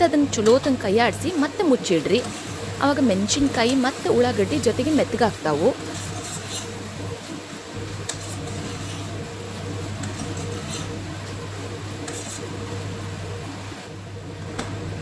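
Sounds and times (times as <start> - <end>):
steady low hum: 0.0 - 15.0
spoon stirring onions in pot: 1.4 - 7.0, 9.8 - 11.0, 12.0 - 12.6.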